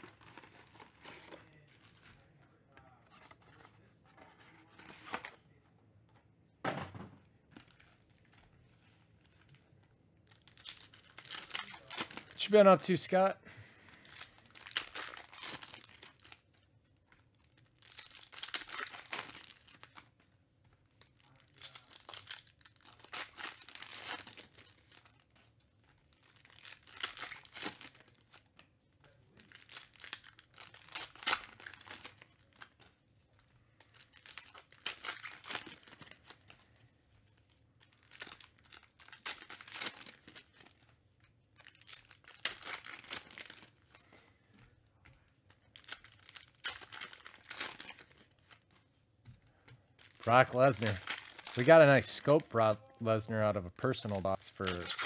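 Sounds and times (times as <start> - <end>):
foil wrappers crinkling and tearing: 10.2 - 48.9, 49.5 - 53.2, 53.8 - 55.0.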